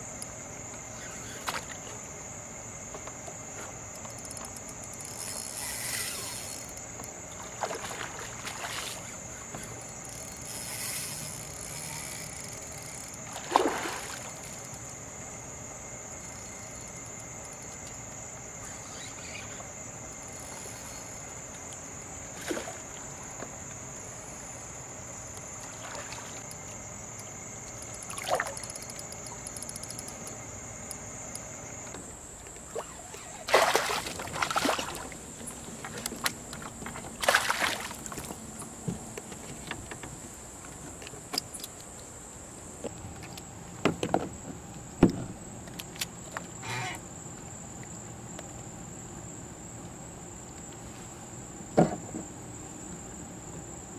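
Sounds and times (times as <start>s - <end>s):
night insects chirring: 0.0s - 53.9s
water splashing: 7.4s - 9.2s, 13.2s - 14.5s, 28.1s - 28.6s, 32.7s - 38.4s
sharp knocks: 45.0s - 45.4s.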